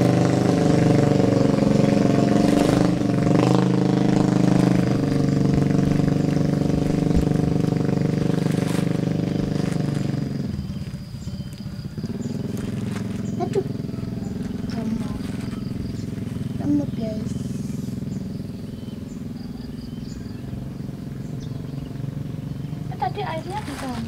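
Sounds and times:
engine running: 0:00.0 - 0:24.0.

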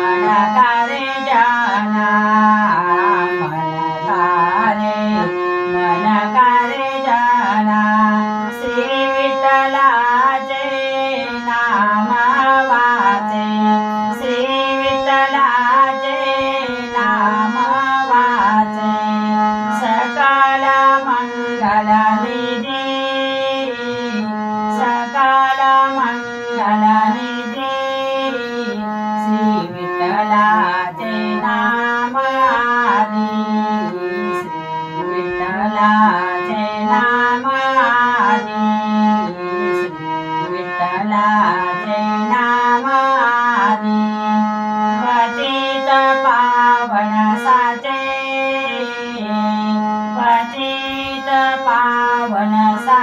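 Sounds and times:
harmonium melody over drone: 0:00.0 - 0:53.0
woman singing: 0:00.0 - 0:53.0.

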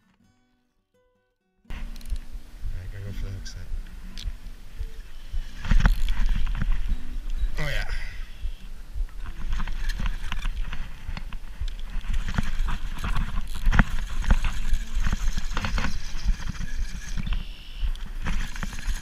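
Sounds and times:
low wind rumble: 0:01.7 - 0:19.0
fishing reel clicking: 0:01.9 - 0:02.3, 0:05.4 - 0:06.4, 0:11.7 - 0:17.5, 0:18.3 - 0:19.0
clothing rubbing on camera: 0:03.0 - 0:07.3, 0:08.5 - 0:19.0.

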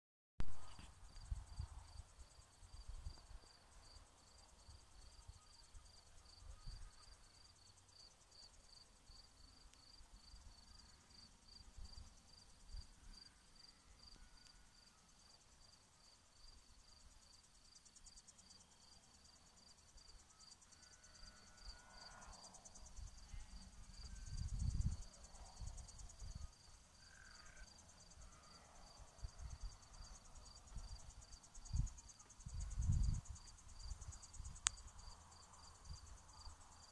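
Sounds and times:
cricket chirping: 0:00.4 - 0:36.9.

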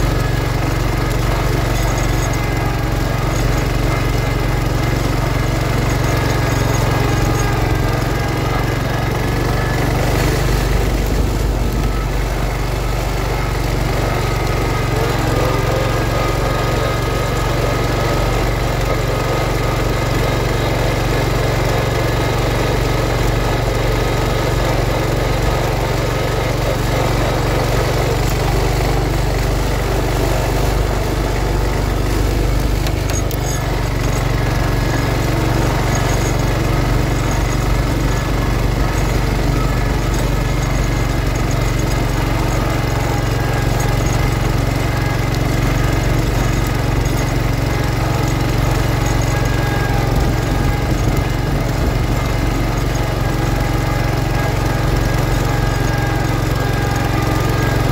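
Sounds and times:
garden tractor engine running: 0:00.0 - 0:57.9.

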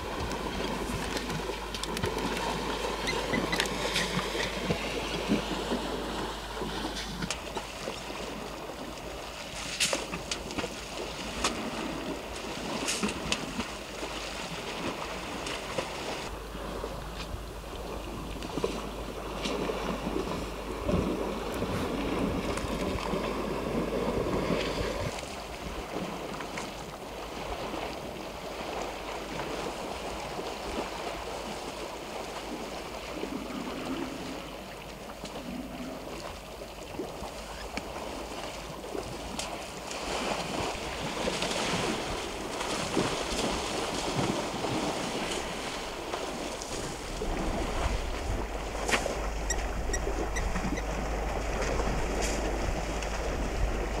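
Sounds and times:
elephants splashing in water: 0:00.0 - 0:54.0
wind noise on microphone: 0:14.6 - 0:31.6, 0:37.3 - 0:54.0.

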